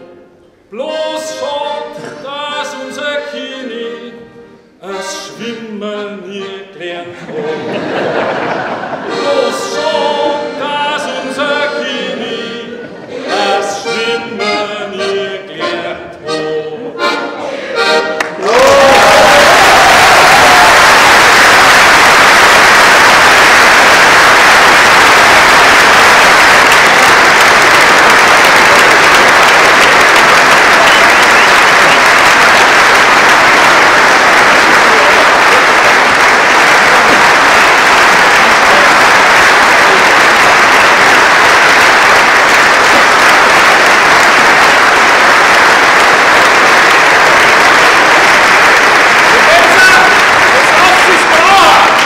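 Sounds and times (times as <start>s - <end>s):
audience applauding: 7.6s - 11.8s, 17.8s - 52.0s.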